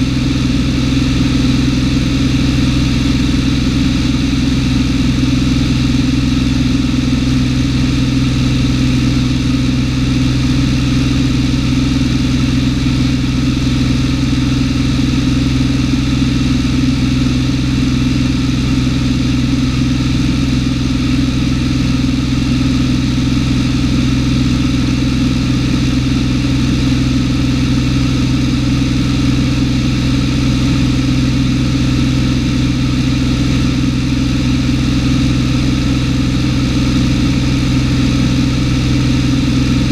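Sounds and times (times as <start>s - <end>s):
airplane engine drone in cabin: 0.0s - 39.9s.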